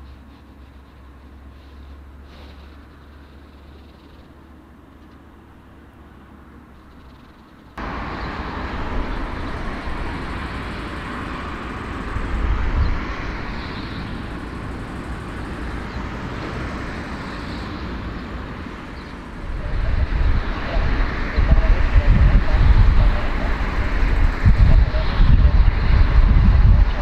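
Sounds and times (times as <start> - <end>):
jet engines rumbling: 0.0 - 27.0.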